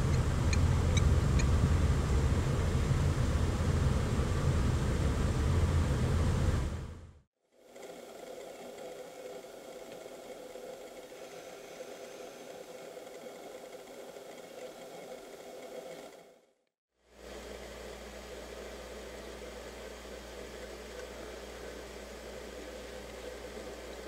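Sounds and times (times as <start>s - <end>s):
engine humming: 0.0s - 7.2s, 17.3s - 24.0s
heavy low rumble: 0.0s - 7.2s.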